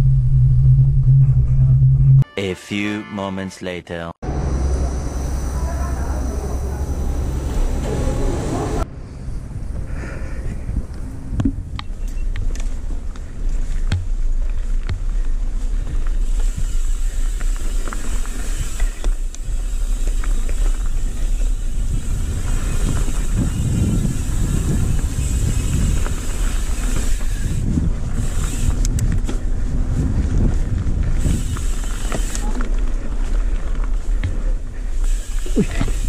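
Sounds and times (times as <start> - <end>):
wind buffeting microphone: 6.2 - 17.4, 20.7 - 35.0
bike knocks and rattles: 11.4 - 36.0.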